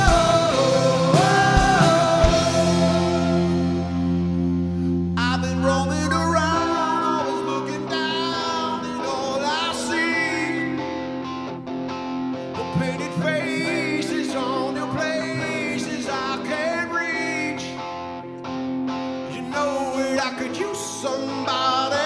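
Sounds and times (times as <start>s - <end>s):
man singing: 0.0s - 4.1s, 5.1s - 11.2s, 12.5s - 17.9s, 19.3s - 22.0s
bass and drums: 0.0s - 5.2s
electric guitars: 0.0s - 22.0s.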